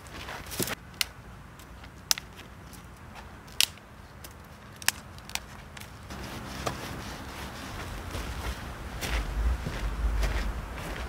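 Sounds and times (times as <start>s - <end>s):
wooden sticks clicking and knocking: 0.5s - 7.0s
rustling hiss: 5.9s - 11.0s.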